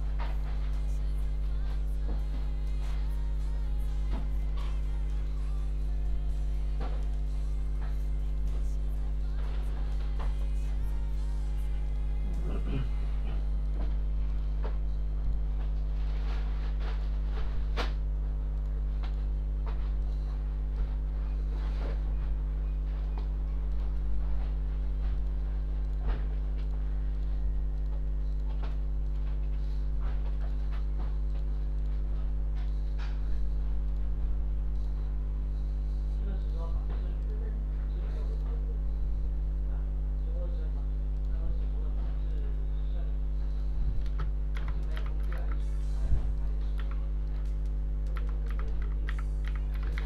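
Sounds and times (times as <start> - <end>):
steady low hum with tones: 0.0 - 50.0
keyboard keys clicking: 44.0 - 50.0.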